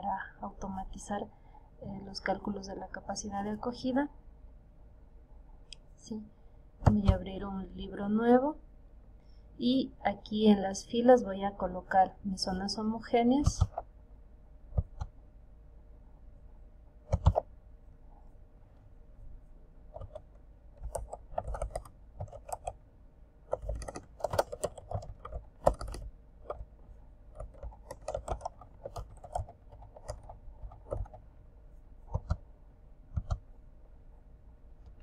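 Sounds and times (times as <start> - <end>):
keyboard typing: 6.8 - 7.4, 13.4 - 13.9, 14.7 - 15.2, 17.1 - 17.5, 19.9 - 22.8, 23.5 - 31.3, 32.0 - 32.5, 33.1 - 33.5
loud keyboard click: 17.1 - 17.5, 20.0 - 22.8, 23.5 - 26.7, 27.4 - 31.2, 32.1 - 32.4, 33.1 - 33.4.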